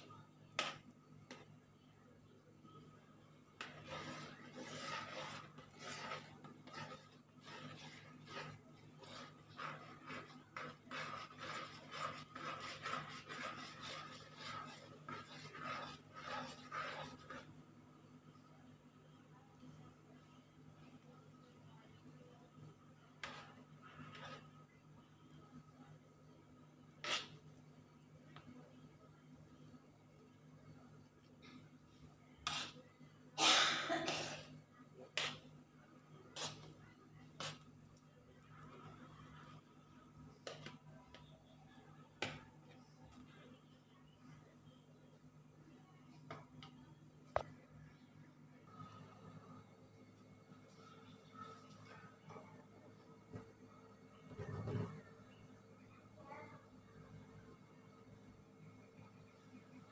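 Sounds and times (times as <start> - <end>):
faint low hum: 0.0 - 59.9
metal spoon scraping a pan: 3.6 - 17.5, 27.0 - 27.4, 32.4 - 32.9.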